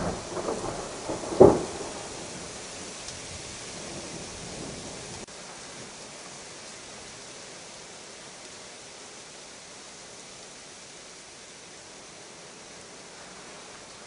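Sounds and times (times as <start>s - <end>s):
thunder clap: 0.0s - 2.5s
hail and sleet hissing: 0.0s - 14.0s.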